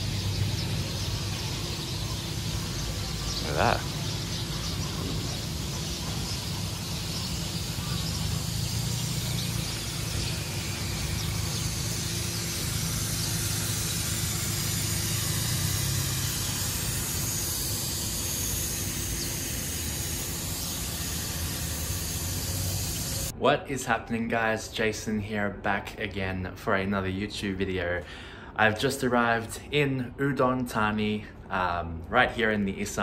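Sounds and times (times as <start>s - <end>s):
road traffic rumble: 0.0s - 23.4s.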